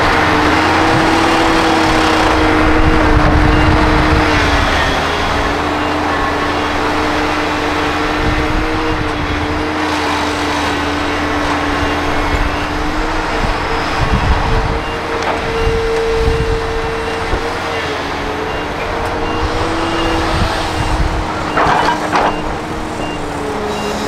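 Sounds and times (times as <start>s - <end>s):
excavator diesel engine: 0.0s - 24.0s
hydraulic whine: 0.0s - 24.0s.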